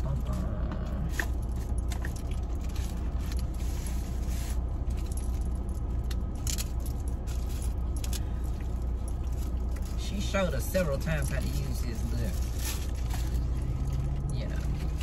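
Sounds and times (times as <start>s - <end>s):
idling car hum: 0.0s - 15.0s
small objects clicking and jangling: 4.9s - 10.0s.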